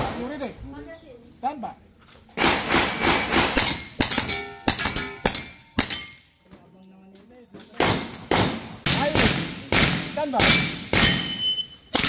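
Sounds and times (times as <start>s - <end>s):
steel target plates ringing: 3.6s - 6.3s, 10.4s - 12.0s
pistol shots: 7.8s - 12.0s.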